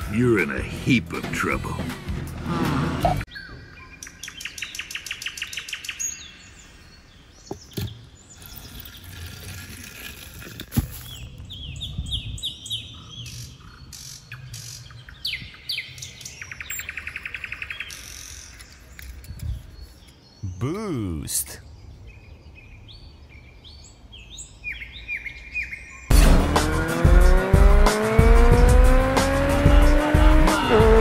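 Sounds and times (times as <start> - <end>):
songbirds trilling and chirping: 3.2 - 9.2, 11.0 - 26.1.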